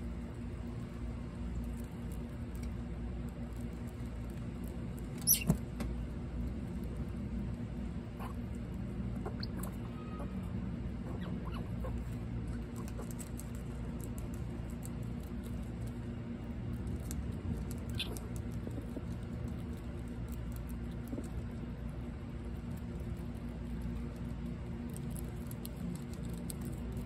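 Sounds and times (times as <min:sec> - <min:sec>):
squirrels chewing clicks: 0:11.0 - 0:27.0.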